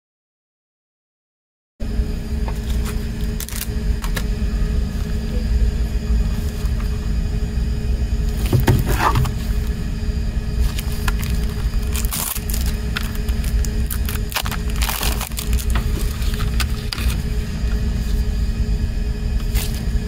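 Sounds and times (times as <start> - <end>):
low rumble and hum: 1.8 - 20.0
taps and crinkles of cd case: 2.5 - 4.3, 10.7 - 17.2
plastic rustling: 2.6 - 5.1, 10.6 - 18.3, 19.4 - 20.0.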